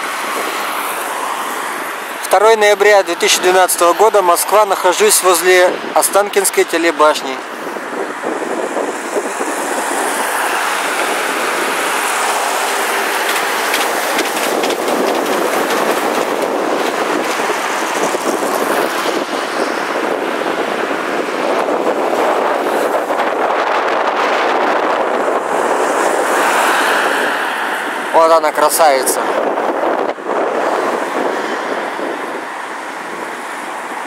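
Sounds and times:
monorail train passing: 0:00.0 - 0:34.0
road traffic noise: 0:00.0 - 0:34.0.

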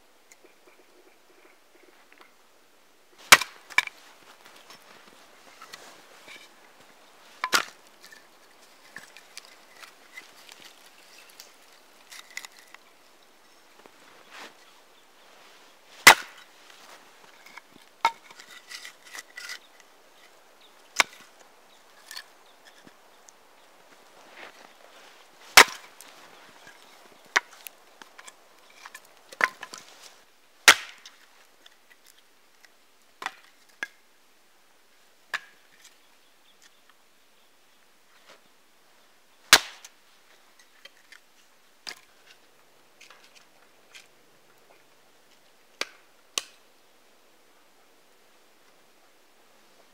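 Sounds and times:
hatchet splitting wood: 0:16.0 - 0:16.4, 0:25.6 - 0:25.8, 0:30.7 - 0:31.1, 0:39.5 - 0:39.9.

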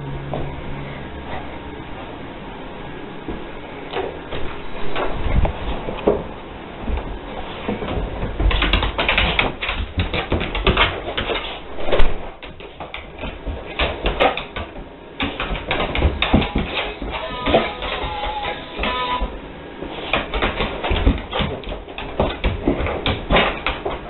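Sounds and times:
dog claws clicking on wooden floor: 0:07.7 - 0:19.3, 0:20.0 - 0:24.0.

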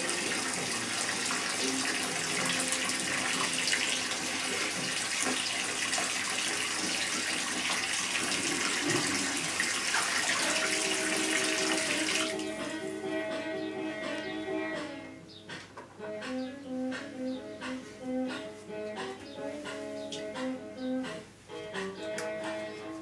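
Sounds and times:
water running into bathtub: 0:00.0 - 0:13.0.

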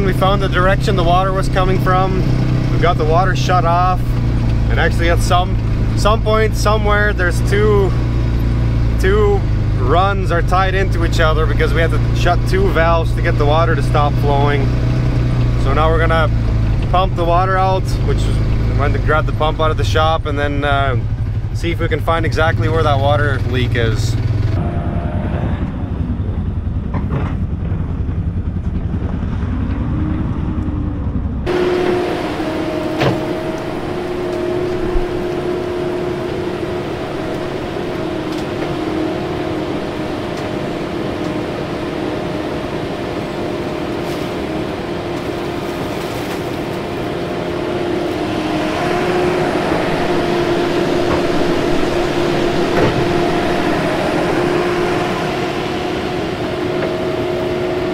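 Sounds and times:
vehicle engine running in cab: 0:00.0 - 0:57.9
excavator digging: 0:31.5 - 0:57.9.

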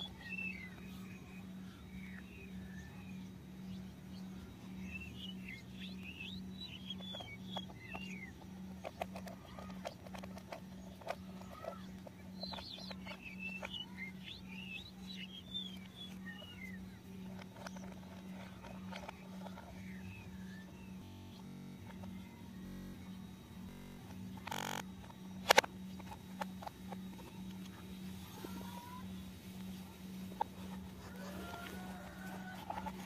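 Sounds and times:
steady low hum: 0:00.0 - 0:33.0
plastic toy parts clicking: 0:06.8 - 0:20.0, 0:23.7 - 0:27.7
plastic screw turning: 0:07.5 - 0:13.8, 0:17.3 - 0:20.0, 0:24.0 - 0:27.1.

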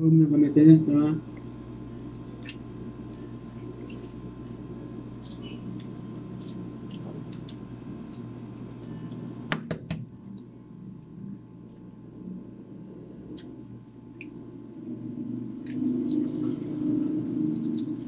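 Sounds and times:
room hum: 0:00.0 - 0:18.0
egg shells cracking: 0:17.6 - 0:18.0.

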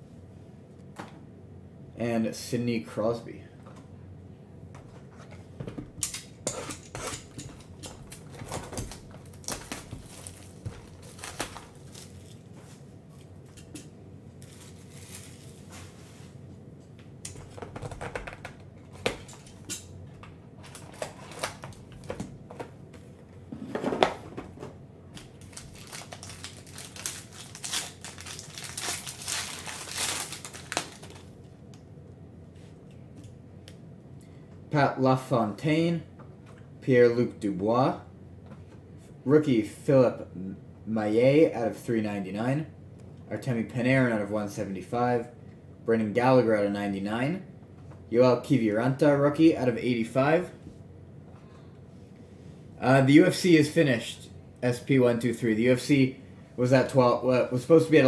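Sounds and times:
plastic wrapper tearing and crinkling: 0:08.1 - 0:12.5, 0:14.4 - 0:15.7, 0:20.7 - 0:22.1, 0:25.3 - 0:31.4.

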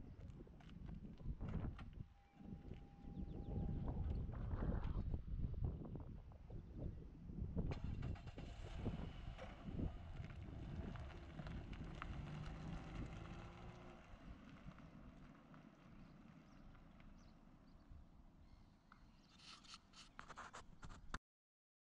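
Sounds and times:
low wind rumble: 0:00.0 - 0:15.1
faint engine hum: 0:00.0 - 0:18.9.

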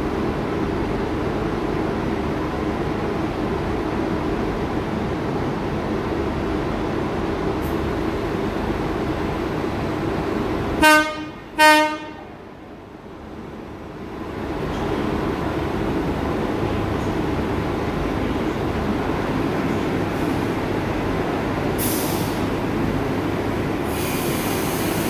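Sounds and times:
train rumbling: 0:00.0 - 0:25.0
train horn toots: 0:10.8 - 0:12.3.

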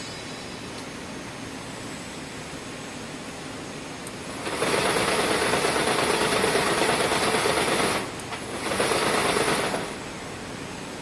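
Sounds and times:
braiding machine clattering: 0:04.4 - 0:10.0.

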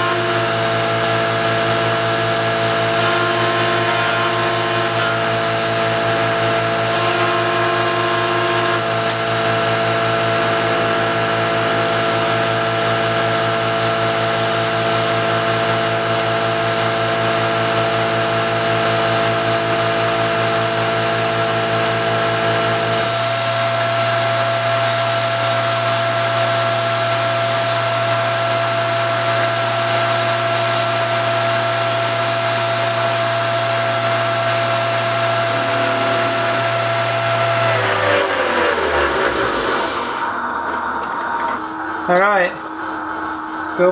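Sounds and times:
milling machine whine: 0:00.0 - 0:41.9
low hum: 0:33.6 - 0:40.6.

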